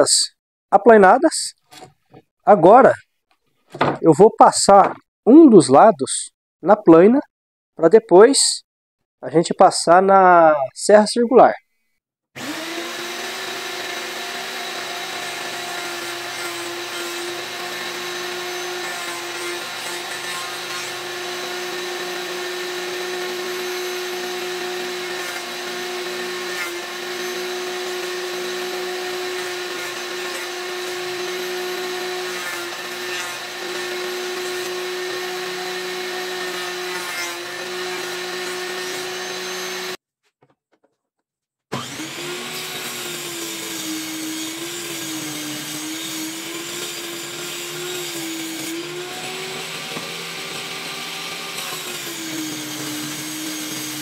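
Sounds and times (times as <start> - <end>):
electric planer humming: 12.4 - 40.0, 41.7 - 54.0.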